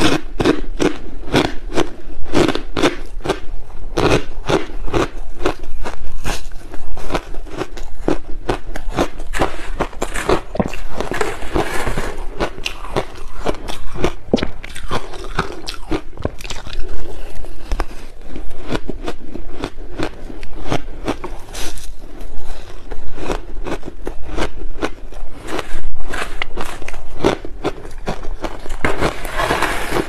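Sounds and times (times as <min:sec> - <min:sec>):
crunching and chewing ice: 0:00.0 - 0:30.0
metal spoon scraping shaved ice: 0:09.3 - 0:13.2, 0:28.6 - 0:30.0.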